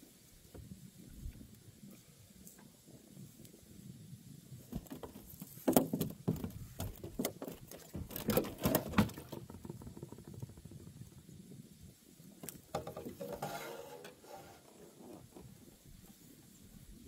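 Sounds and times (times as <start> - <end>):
fishing gear clicks and rustles: 4.7 - 11.0.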